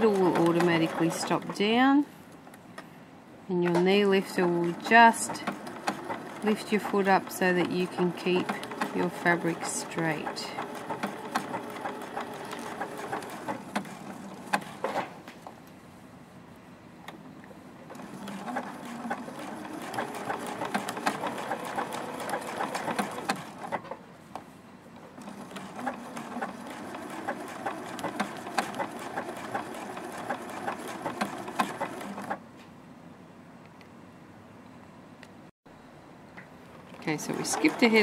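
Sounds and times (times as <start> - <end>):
sewing machine sewing: 0.0 - 1.6, 4.1 - 15.1, 17.9 - 23.9, 25.0 - 32.4, 37.0 - 38.0.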